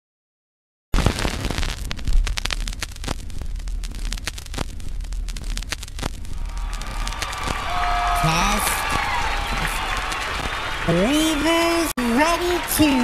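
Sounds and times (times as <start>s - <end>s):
vinyl record crackles and pops: 0.9s - 13.0s
low hum: 1.9s - 9.6s.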